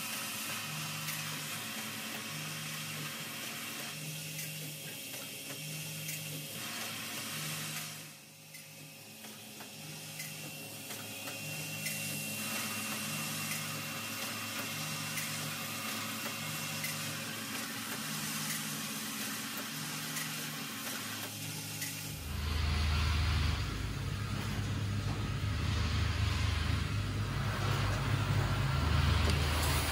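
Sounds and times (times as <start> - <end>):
pulsing machinery hum: 21.4 - 29.9
loud low rumble: 22.1 - 29.9.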